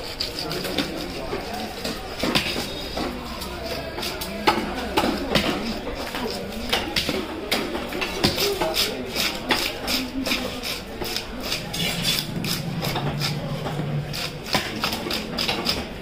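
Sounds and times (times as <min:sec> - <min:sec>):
knife scraping fish scales: 0:00.0 - 0:04.3, 0:08.2 - 0:16.0.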